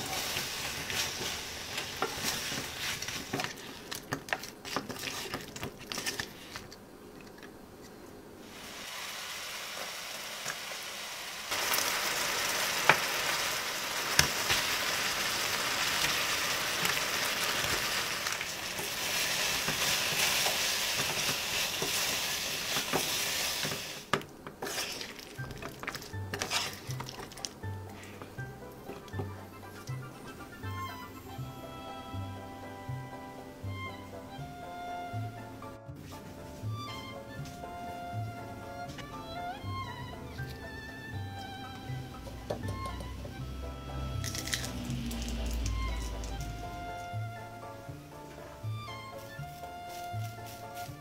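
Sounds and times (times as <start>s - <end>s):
chicken frying in hot oil: 8.4s - 27.5s.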